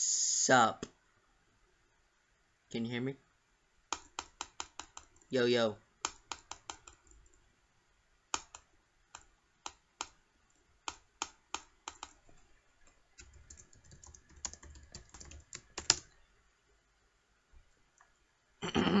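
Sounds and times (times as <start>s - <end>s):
keyboard keystroke clicks: 10.9s - 12.2s, 13.2s - 16.1s.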